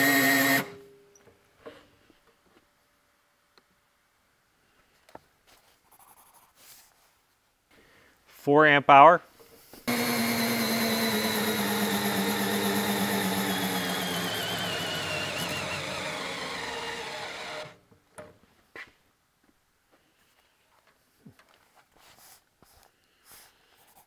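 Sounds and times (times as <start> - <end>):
drill motor whine stalling: 0.0 - 0.8, 9.9 - 17.8.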